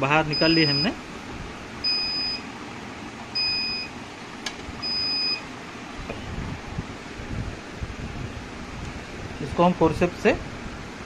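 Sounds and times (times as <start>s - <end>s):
short high electronic beeps: 1.8s - 2.4s, 3.4s - 3.9s, 4.8s - 5.4s.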